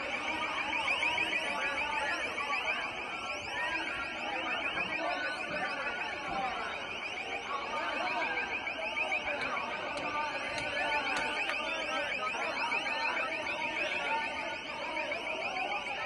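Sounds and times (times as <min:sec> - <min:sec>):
large crowd shouting: 0:00.0 - 0:16.0.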